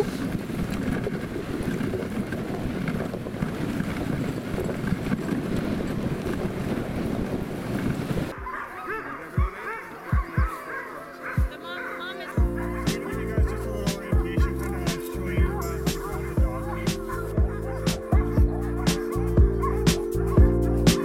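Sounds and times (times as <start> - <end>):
wind on microphone: 0.0 - 8.5
sled runners on snow: 0.0 - 21.0
distant dogs barking: 8.3 - 21.0.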